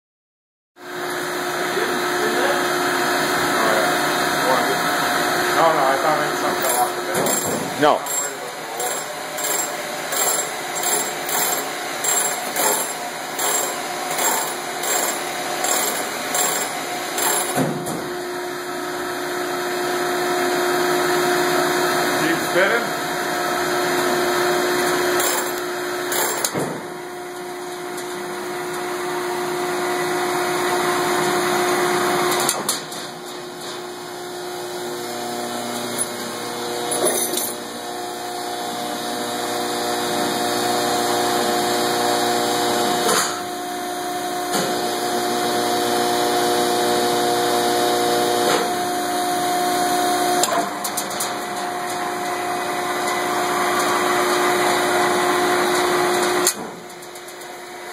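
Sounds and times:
machine chain drive humming: 5.6s - 17.6s, 24.8s - 26.6s, 35.7s - 37.8s.

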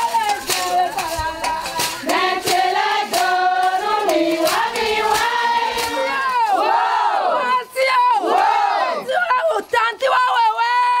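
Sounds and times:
hand claps: 0.0s - 6.5s
women singing together: 0.0s - 9.4s.

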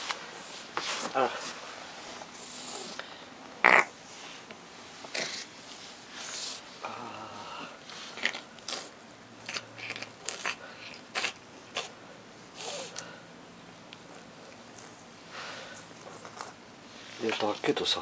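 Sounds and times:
cat licking and chewing paw: 8.2s - 11.9s.

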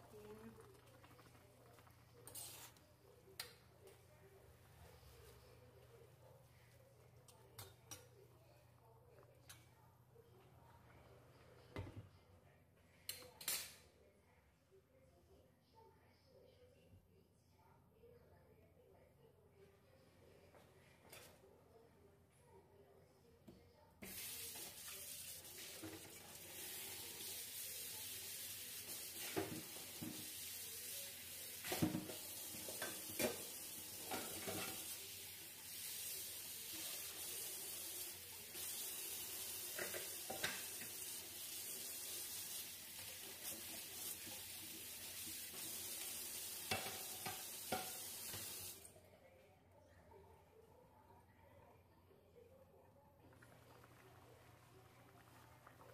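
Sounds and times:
noodles sizzling in a pan: 0.0s - 2.9s, 24.0s - 48.9s.

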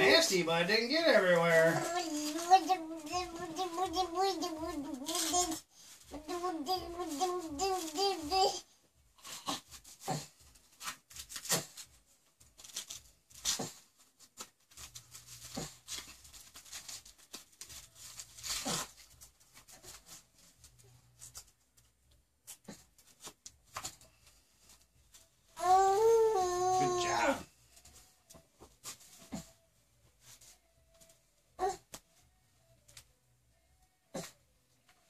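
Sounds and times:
diaper rustling and tearing: 0.0s - 8.6s, 9.2s - 21.6s, 25.6s - 27.5s.

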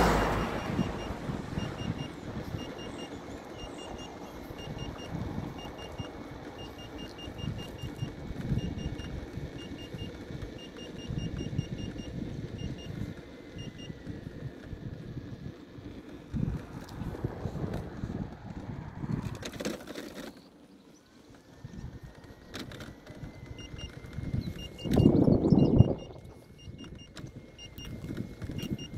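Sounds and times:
wind on microphone: 0.0s - 2.8s, 16.3s - 19.7s, 23.2s - 28.9s
wheel rolling: 0.1s - 28.9s
high warning beeps: 0.2s - 14.0s, 23.5s - 28.9s.

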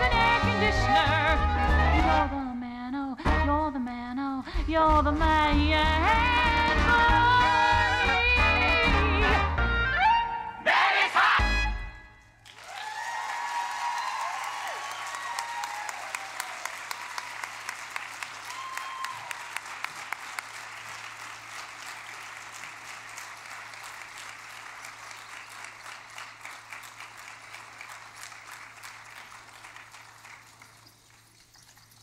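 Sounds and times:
audience applauding: 12.4s - 32.0s
cheering shouts: 12.6s - 17.5s, 18.4s - 19.7s.

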